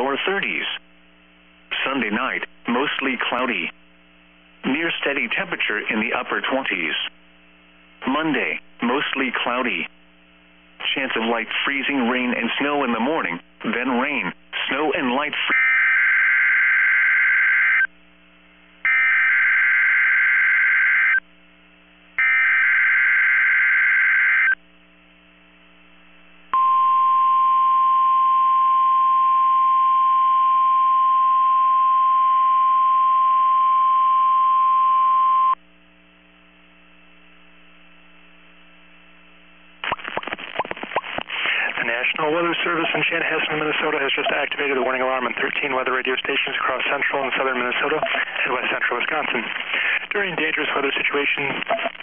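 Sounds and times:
steady warning alarm tone: 0:18.9 - 0:21.2, 0:22.2 - 0:24.6.

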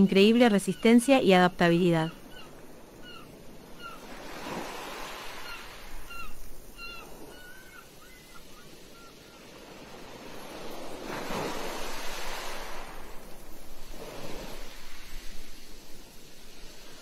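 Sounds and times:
waves washing on shore: 0:01.9 - 0:17.0
short high bird calls: 0:02.0 - 0:04.1, 0:05.3 - 0:09.5.

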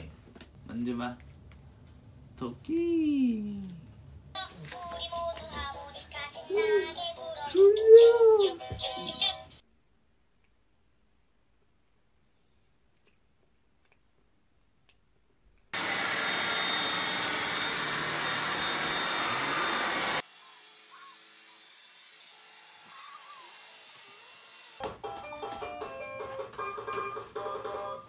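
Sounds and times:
vacuum cleaner high whine: 0:15.8 - 0:21.8.

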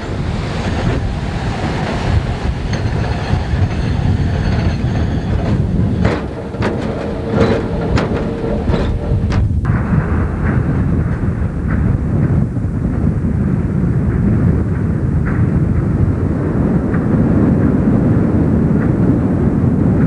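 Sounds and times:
high wheel squeal: 0:00.0 - 0:09.4
wheels clicking over rail joints: 0:00.0 - 0:09.8
truck rumbling on rails: 0:00.0 - 0:20.0.

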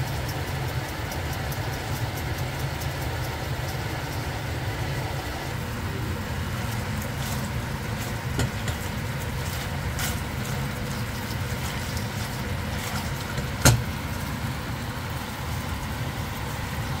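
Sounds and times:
wooden spatula scraping metal pot: 0:06.5 - 0:14.0.

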